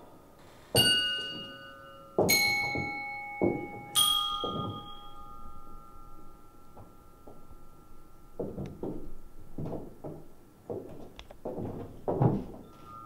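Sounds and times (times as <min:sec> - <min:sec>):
metal bell ringing: 0:00.8 - 0:08.4, 0:12.6 - 0:13.0
dull knocks: 0:08.4 - 0:12.6.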